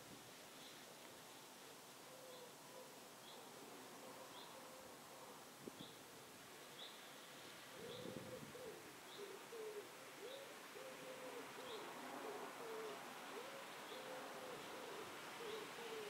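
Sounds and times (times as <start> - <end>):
dove cooing: 2.0 - 5.4, 7.7 - 16.0.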